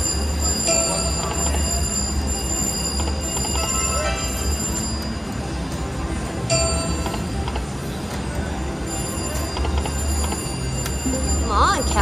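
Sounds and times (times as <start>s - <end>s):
slot machine reel ticking: 0.0s - 12.0s.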